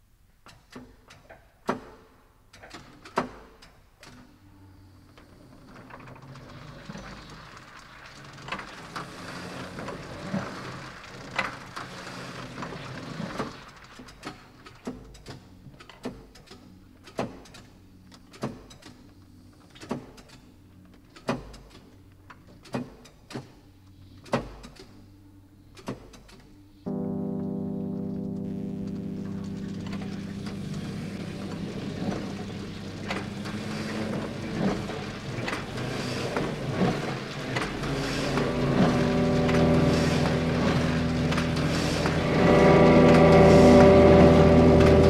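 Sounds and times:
low machine hum: 26.9s - 45.0s.

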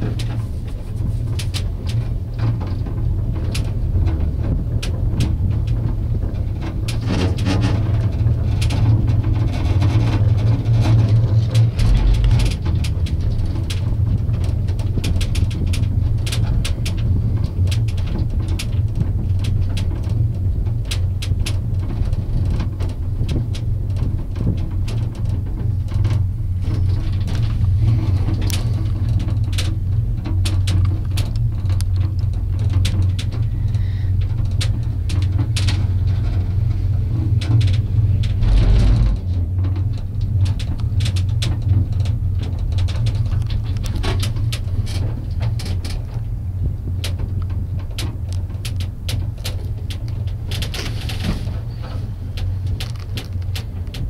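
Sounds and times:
loud rumble: 0.0s - 19.4s, 25.4s - 47.8s
gondola cabin humming on cable: 0.0s - 54.0s
small clicks and rattles: 0.0s - 54.0s.

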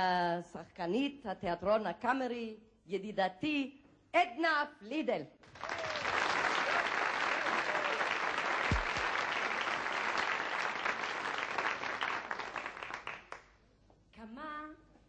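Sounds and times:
audience applauding: 5.5s - 13.5s
low thump: 8.7s - 9.0s.

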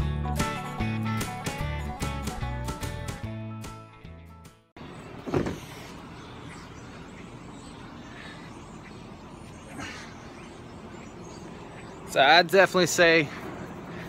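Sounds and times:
background music: 0.0s - 4.7s
outdoor background noise: 4.8s - 14.0s.

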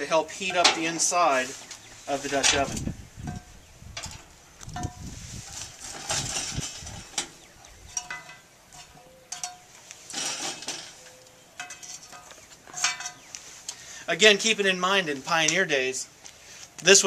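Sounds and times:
tongs clinking on iron lid: 7.9s - 13.3s.

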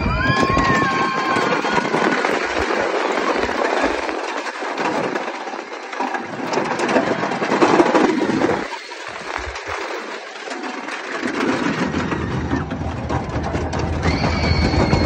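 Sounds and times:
rush of wind: 0.0s - 4.3s
roller coaster wheels rumbling: 0.0s - 15.0s.

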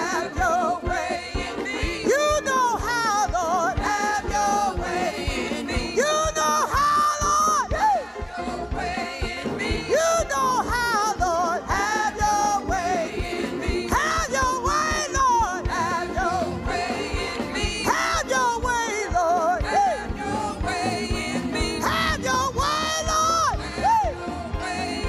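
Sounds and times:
band with drum beat: 0.0s - 25.0s
women singing gospel: 0.0s - 25.0s.

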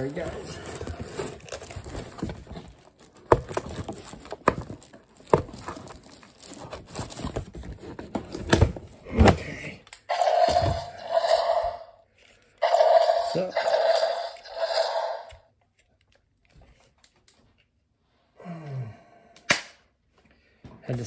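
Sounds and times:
cardboard packaging handled: 0.0s - 9.4s.

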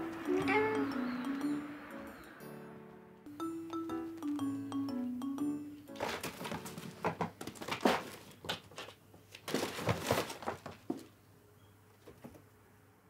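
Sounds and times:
fabric crinkling: 6.0s - 11.0s
kittens scuffling and thumping: 6.0s - 11.2s.

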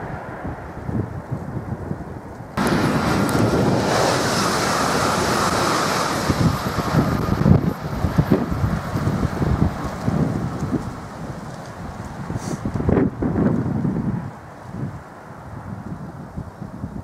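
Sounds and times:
wind buffeting microphone: 0.0s - 17.0s
electric train passing: 2.6s - 13.0s.

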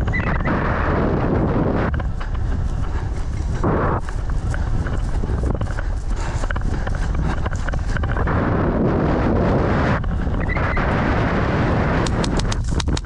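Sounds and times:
running footsteps on grass: 0.0s - 13.0s
wind buffeting microphone: 0.0s - 13.0s
sharp clicks: 12.0s - 13.0s.

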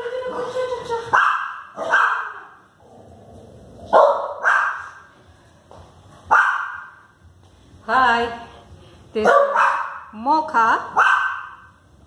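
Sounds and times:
small dog barking: 1.1s - 2.6s, 3.9s - 5.0s, 6.3s - 6.9s, 9.2s - 10.1s, 11.0s - 11.7s.

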